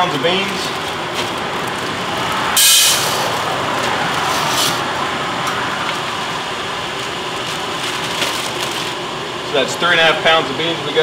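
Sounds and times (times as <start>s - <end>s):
coffee roaster running: 0.0s - 11.0s
plastic bag crackling: 7.0s - 9.0s.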